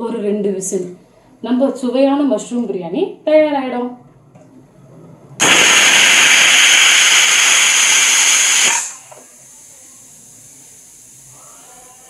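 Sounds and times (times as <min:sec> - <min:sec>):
pressure cooker whistle: 0:05.4 - 0:09.1
faint steam hiss: 0:05.4 - 0:12.0.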